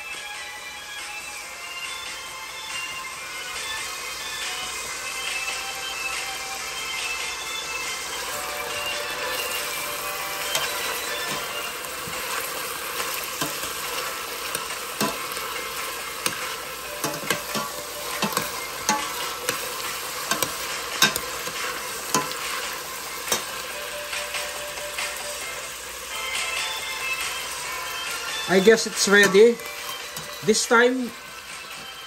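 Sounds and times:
onion and mushroom sizzling: 0.0s - 32.0s
metal spoon scraping and knocking pot: 16.2s - 19.6s, 20.2s - 22.4s.

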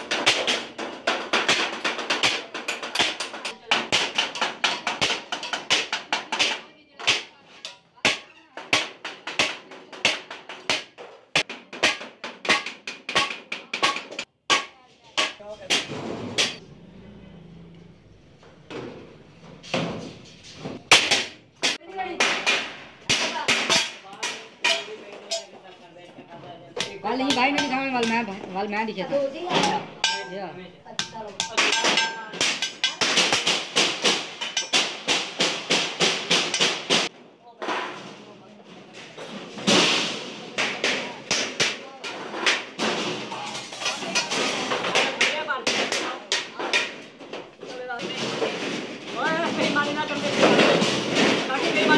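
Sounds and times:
hammer tapping sheet metal: 0.0s - 16.7s, 18.7s - 25.5s, 26.8s - 28.6s, 29.5s - 37.1s.

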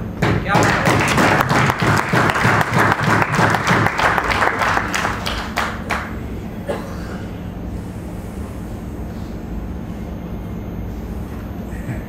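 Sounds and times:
audience applauding: 0.5s - 6.2s.

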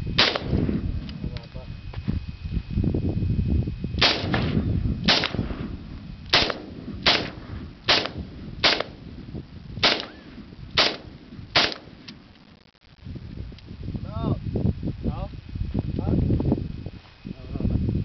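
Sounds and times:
rifle shots with echo: 0.2s - 0.7s, 4.0s - 5.7s, 6.3s - 9.1s, 9.8s - 12.1s.

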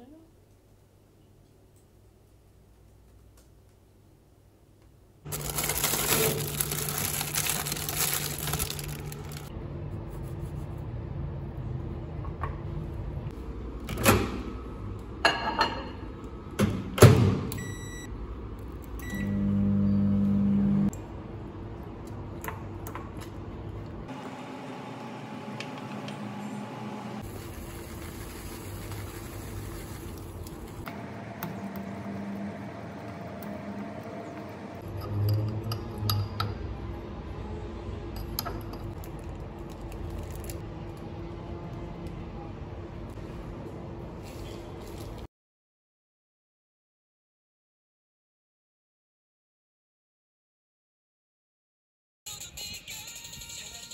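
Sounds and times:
microwave oven humming: 17.1s - 21.9s, 23.8s - 27.4s, 30.9s - 34.8s
microwave keypad beeps: 17.6s - 18.1s.

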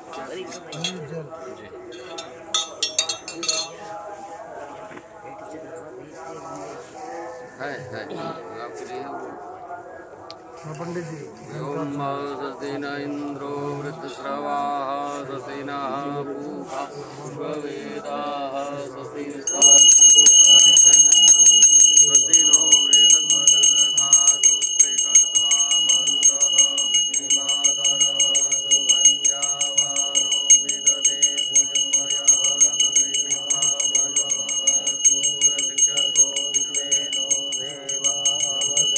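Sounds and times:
hand bell ringing rapidly: 2.0s - 3.8s, 19.3s - 38.9s
voices chanting: 11.4s - 38.9s.

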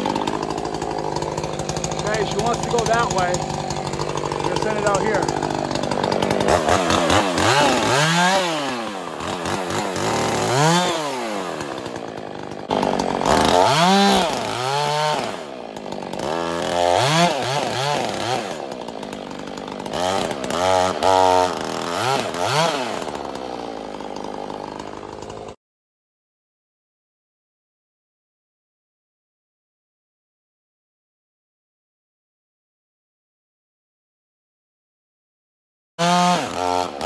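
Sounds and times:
chainsaw cutting wood: 0.0s - 25.6s, 36.0s - 37.0s.

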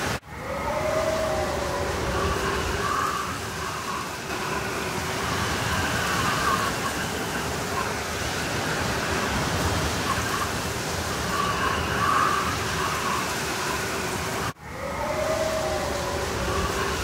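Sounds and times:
blizzard wind whistling: 0.0s - 17.0s.

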